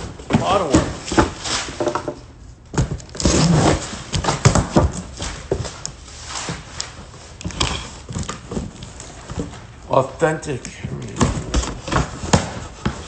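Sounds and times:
cardboard rasp: 11.2 - 13.0.

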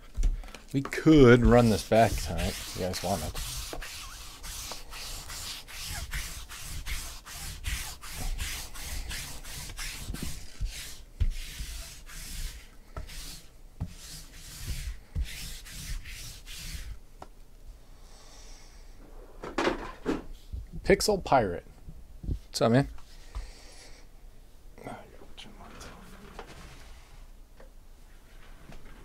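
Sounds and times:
lint roller rasping on table: 0.8 - 17.0.

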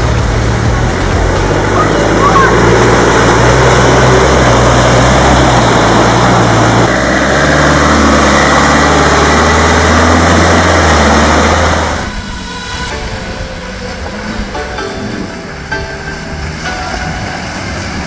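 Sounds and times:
engines running under load: 0.0 - 18.0.

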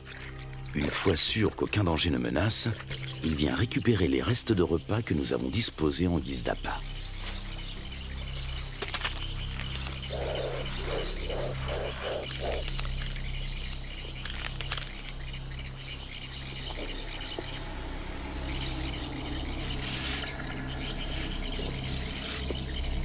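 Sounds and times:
animal croaking calls: 9.5 - 15.2.

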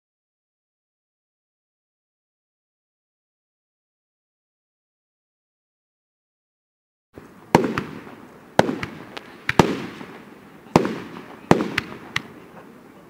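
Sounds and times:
small firework cracks: 7.2 - 12.7
firework shells bursting: 7.5 - 12.7.

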